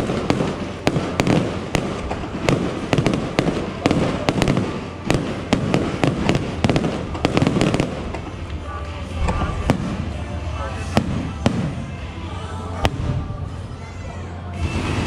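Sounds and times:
fireworks bangs and pops: 0.0s - 8.3s, 9.2s - 10.2s, 10.9s - 12.0s
fireworks crackling: 0.0s - 13.6s.

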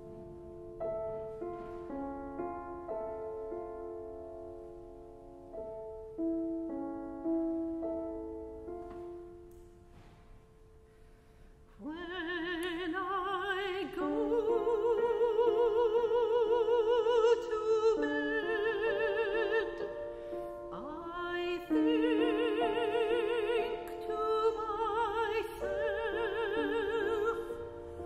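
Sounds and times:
grand piano chords: 0.0s - 28.0s
soprano singing with vibrato: 11.8s - 28.0s.

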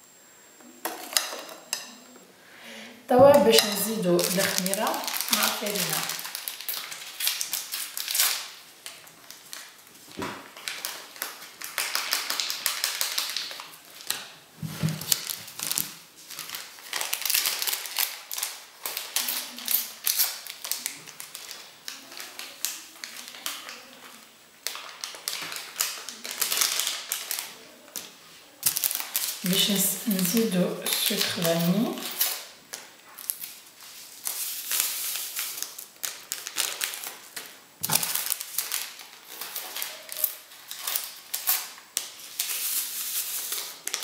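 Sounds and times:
paper sachet rustling: 3.2s - 44.0s.

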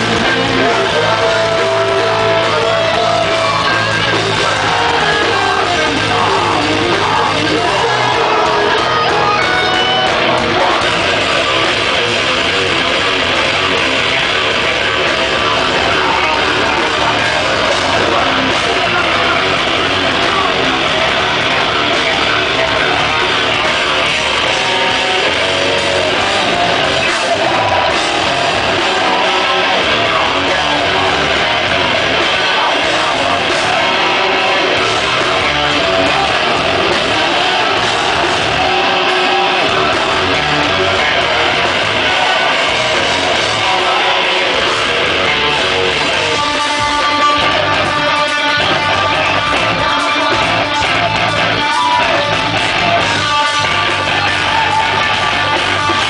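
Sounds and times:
bass guitar: 0.0s - 56.0s
drums: 0.0s - 56.0s
electric guitars: 0.0s - 56.0s.

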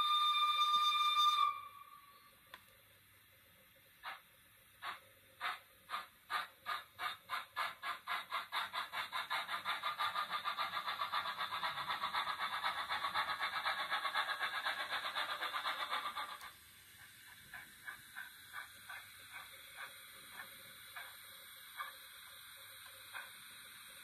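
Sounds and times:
steam exhaust chuffs: 4.0s - 24.0s.

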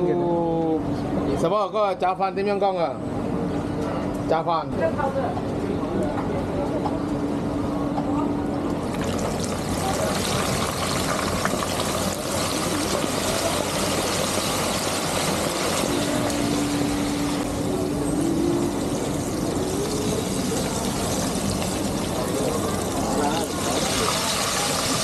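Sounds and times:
gas burner roar: 8.7s - 25.0s
food deep-frying sizzle: 8.8s - 25.0s.

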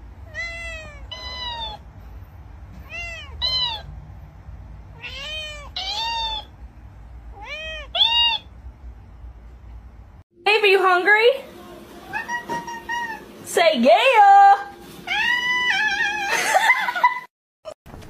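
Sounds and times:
cat meowing: 0.3s - 1.8s, 2.8s - 3.9s, 4.9s - 6.5s, 7.3s - 8.5s, 12.1s - 13.3s, 15.1s - 16.4s
toy squeaky mimic meow: 5.2s - 6.5s, 7.4s - 8.5s.

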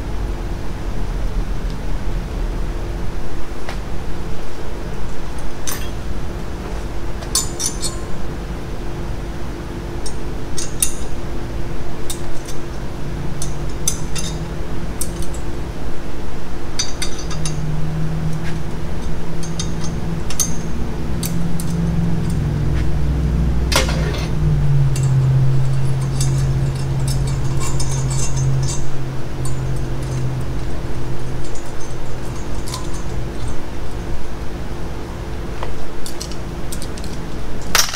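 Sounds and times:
low drone: 0.0s - 37.4s
machine hum: 0.0s - 37.7s
metal tools clinking: 5.6s - 6.0s, 23.7s - 24.3s, 25.0s - 30.4s.

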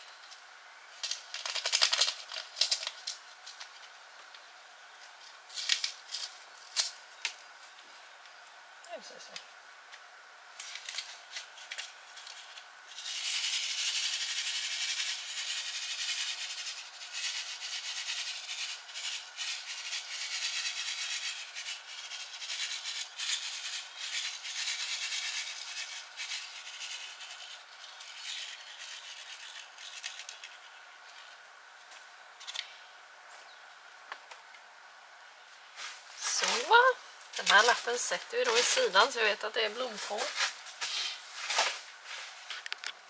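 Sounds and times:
paper packet rustling: 1.0s - 3.9s, 35.8s - 42.6s
seeds rattling in packet: 1.0s - 3.9s, 10.6s - 31.4s, 35.8s - 42.8s.

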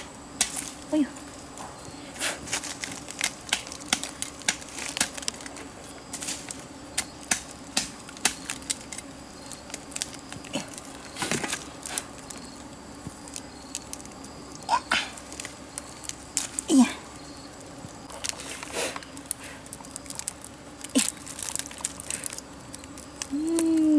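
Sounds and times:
knife snapping mushrooms off tree: 2.5s - 12.1s.

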